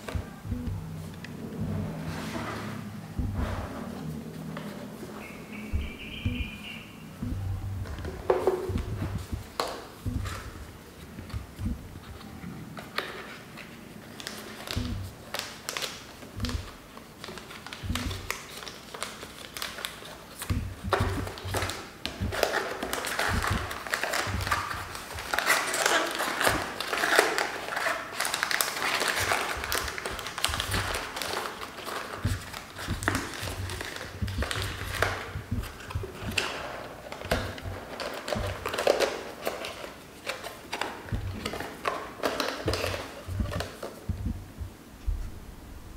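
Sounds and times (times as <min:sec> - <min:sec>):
foil sachets crinkling: 0:16.9 - 0:20.5, 0:21.2 - 0:35.3, 0:36.2 - 0:44.1.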